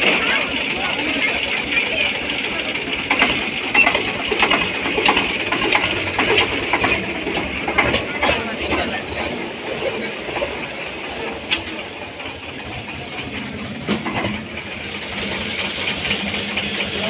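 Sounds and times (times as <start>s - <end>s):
tractor diesel engine idling: 0.0s - 17.0s.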